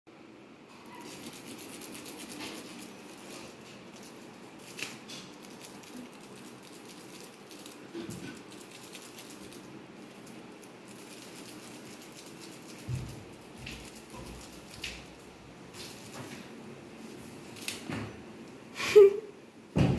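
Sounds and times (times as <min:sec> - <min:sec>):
plastic bag crinkling: 0:00.9 - 0:16.5.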